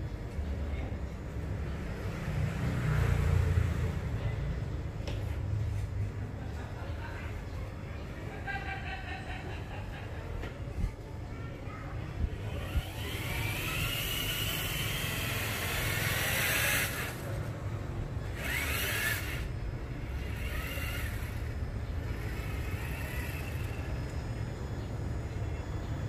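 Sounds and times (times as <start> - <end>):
rc car motor whining: 12.2 - 17.5, 18.2 - 25.5.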